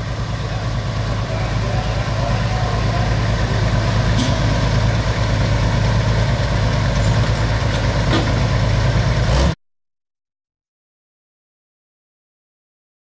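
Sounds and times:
tractor diesel engine idling: 0.0 - 9.6.

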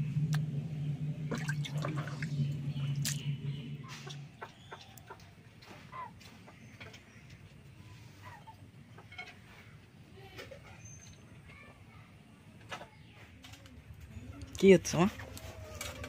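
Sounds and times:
steady low hum: 0.0 - 10.1
water dripping and splashing: 1.3 - 2.3, 3.0 - 3.2.

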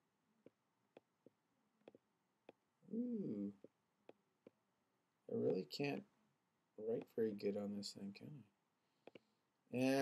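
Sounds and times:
man humming: 2.9 - 3.6.

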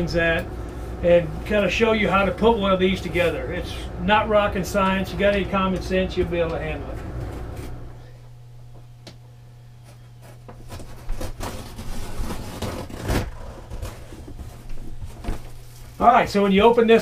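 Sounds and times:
steady low hum: 0.0 - 17.0
cardboard box scraping on floor: 10.6 - 15.8.

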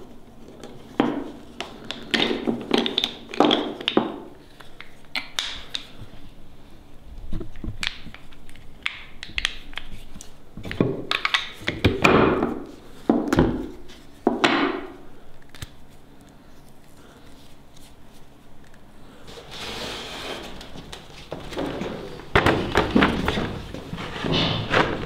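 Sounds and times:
wooden blocks clacking and knocking: 0.4 - 5.9, 7.5 - 10.0, 10.6 - 15.0, 20.6 - 25.0.

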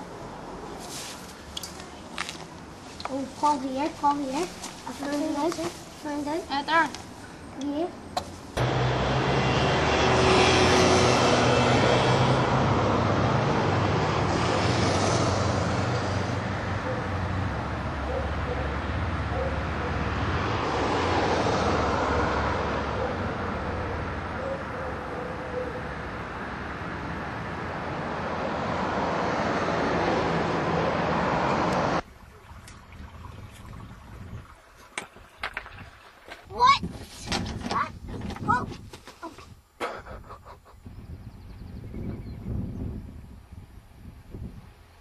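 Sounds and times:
vehicles passing: 0.0 - 36.8
low engine hum: 8.6 - 34.7.

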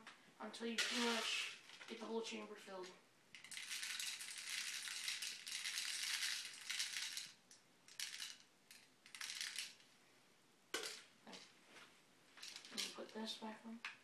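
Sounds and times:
plastic bbs rattling in magazine: 3.3 - 9.8, 12.4 - 13.1.

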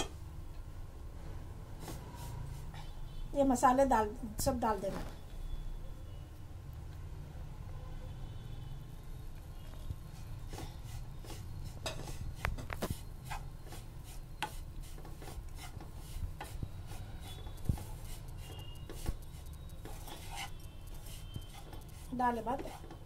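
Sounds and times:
spatula scraping a wok: 10.1 - 23.0.

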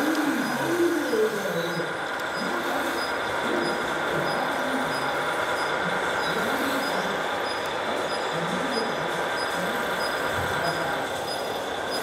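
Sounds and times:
model trucks running: 0.0 - 12.0.

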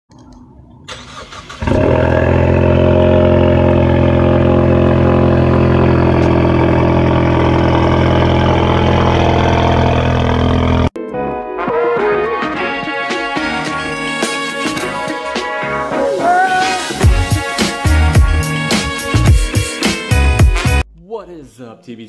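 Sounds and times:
car engine cranking and starting: 0.9 - 10.9
car engine idling: 1.5 - 10.9.

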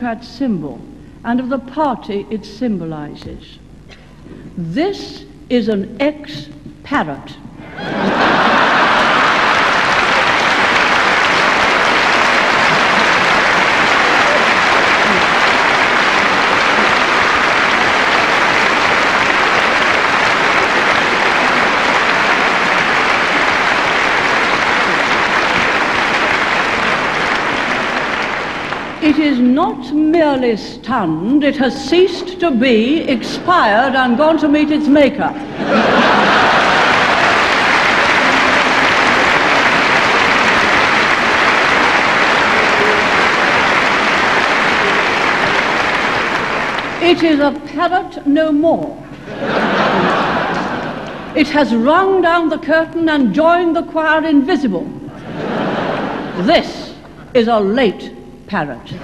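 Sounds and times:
audience applauding: 7.8 - 29.2, 35.6 - 47.4, 49.1 - 51.4, 55.2 - 56.5.

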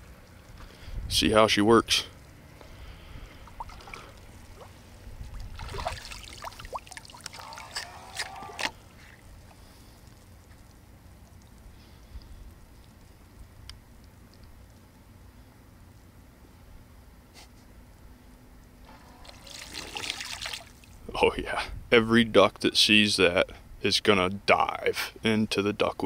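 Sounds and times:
shallow water splashing and dripping: 0.0 - 1.0, 2.2 - 15.0, 19.2 - 21.0.

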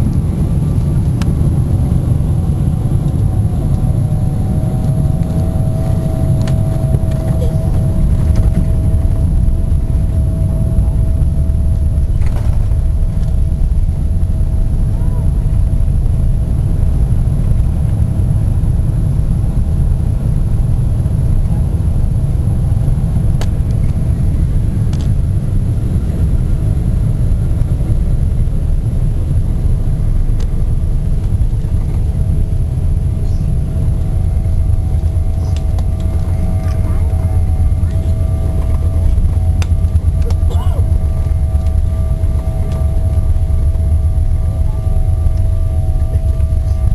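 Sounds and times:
airliner cabin rumble: 0.0 - 46.9
faint steady hum: 0.0 - 46.9.

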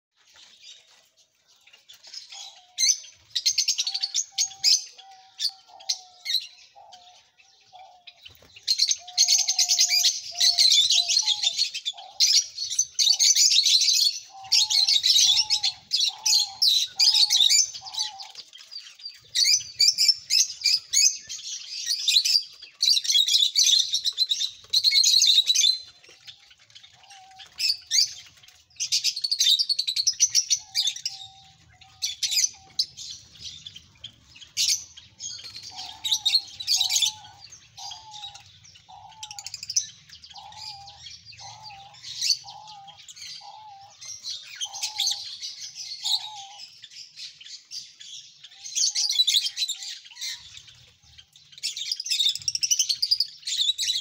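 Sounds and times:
lovebirds twittering: 0.2 - 54.0.

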